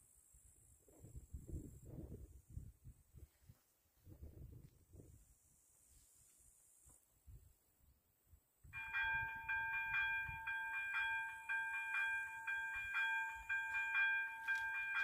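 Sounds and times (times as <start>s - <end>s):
level crossing warning bell: 8.8s - 15.0s.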